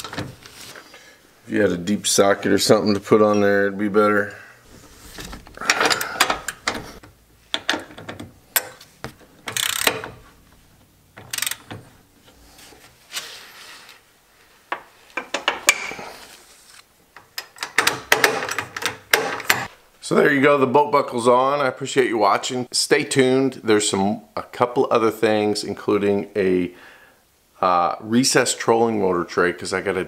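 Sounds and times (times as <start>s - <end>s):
ratchet clicking: 9.5s - 10.2s, 11.2s - 11.8s.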